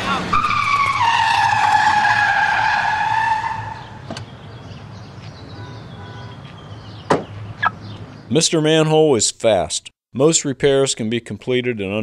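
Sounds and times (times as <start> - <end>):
car tyres screeching: 0.0 - 4.7.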